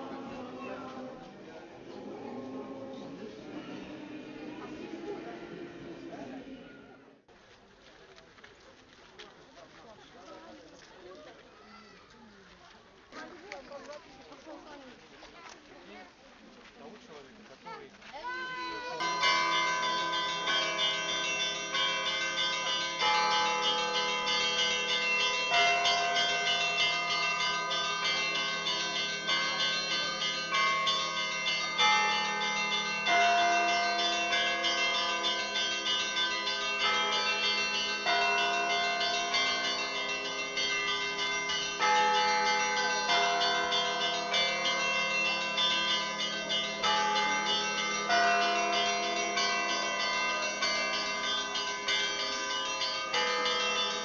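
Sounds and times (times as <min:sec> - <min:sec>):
low church bells: 0:18.3 - 0:54.0.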